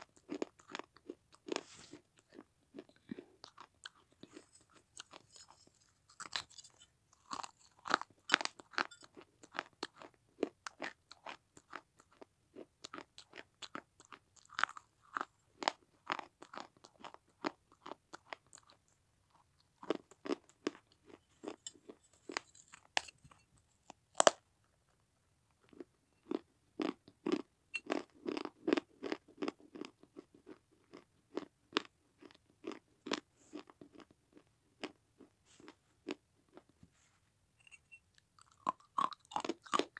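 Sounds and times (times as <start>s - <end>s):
teeth crunching clay: 0.0s - 23.1s, 37.7s - 39.9s.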